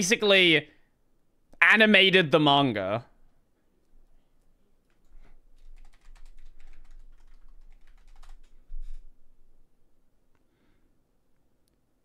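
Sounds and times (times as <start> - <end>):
typing on computer keyboard: 4.9 - 9.0.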